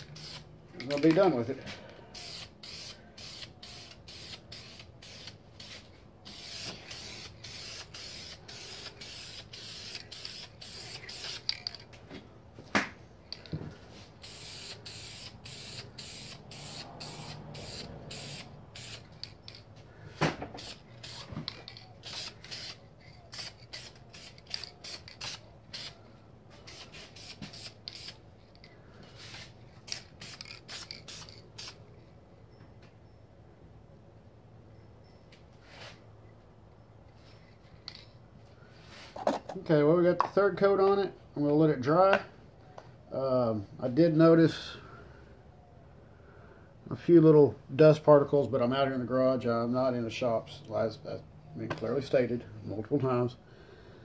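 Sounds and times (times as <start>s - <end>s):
aerosol spray can hissing: 0.0s - 0.5s, 2.1s - 11.7s, 14.2s - 19.1s, 20.6s - 21.3s, 22.0s - 26.0s, 26.6s - 28.2s, 29.4s - 31.8s.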